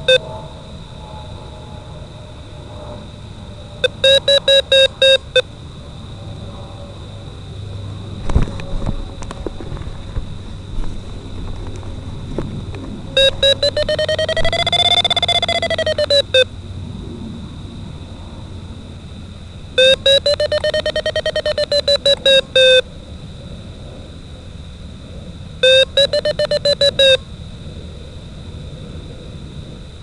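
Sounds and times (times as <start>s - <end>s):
rapid electronic beeps: 0.0s - 0.2s, 3.8s - 5.4s, 13.2s - 16.5s, 19.8s - 22.8s, 25.6s - 27.2s.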